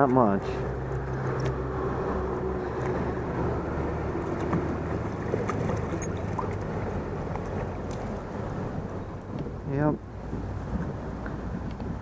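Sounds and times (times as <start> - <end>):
wind noise on microphone: 0.4 - 12.0
fish splashing in water: 0.7 - 9.6.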